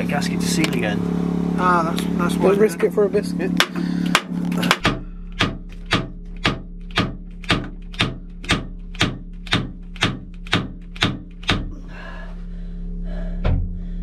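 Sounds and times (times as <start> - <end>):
low hum: 0.0 - 14.0
hammer tapping on metal casing: 3.6 - 11.7.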